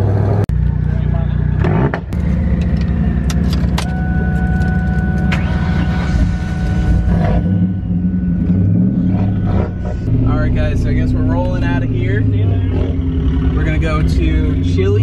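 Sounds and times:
car engine idling: 0.5s - 15.0s
thin high tone: 3.8s - 12.2s.

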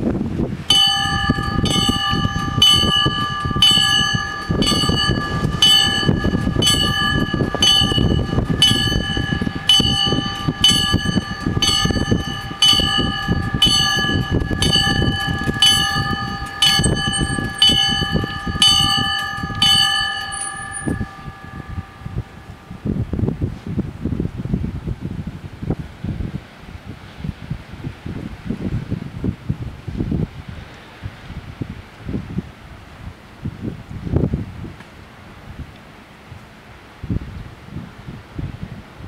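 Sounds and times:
level crossing warning bells: 0.7s - 23.1s.

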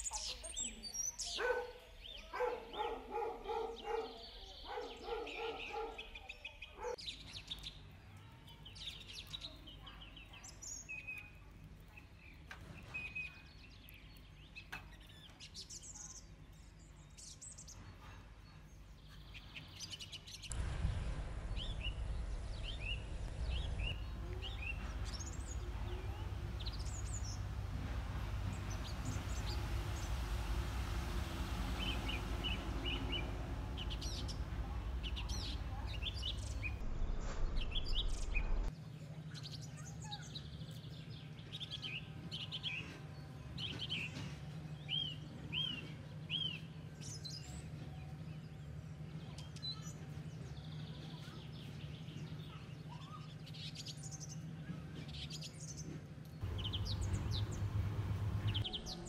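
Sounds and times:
birds chirping and trilling: 0.0s - 38.7s, 55.2s - 59.0s
steady background hiss: 20.5s - 36.7s
lower bird calls: 21.3s - 36.8s.

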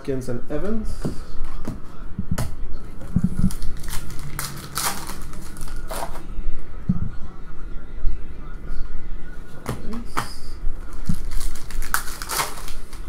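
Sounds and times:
foil wrapper crinkling and tearing: 3.3s - 6.2s, 11.0s - 13.0s.

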